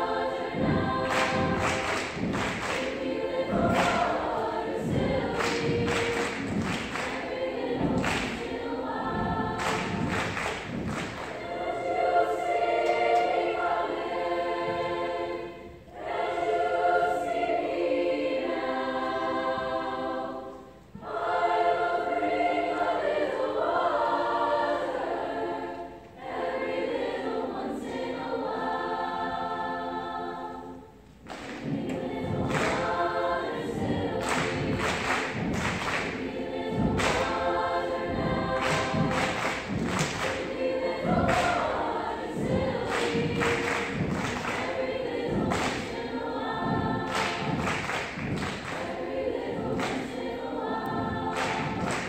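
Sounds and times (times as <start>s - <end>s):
rhythmic thumps: 0.0s - 29.6s, 30.4s - 52.0s
mixed choir singing: 0.0s - 52.0s.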